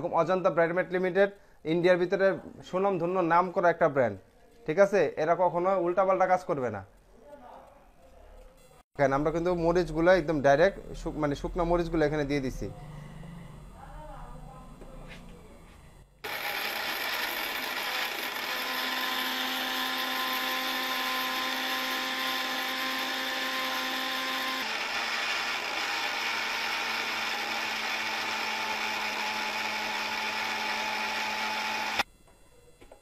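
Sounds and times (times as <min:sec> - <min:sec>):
mixer grinder motor whine: 0:16.2 - 0:32.1.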